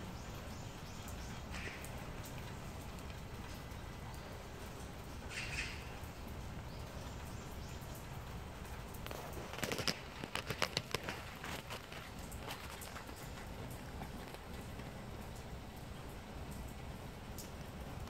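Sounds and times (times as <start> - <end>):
low background hiss: 0.0 - 18.0
brief rustle: 9.0 - 13.5
cat crunching kibble: 9.1 - 15.0.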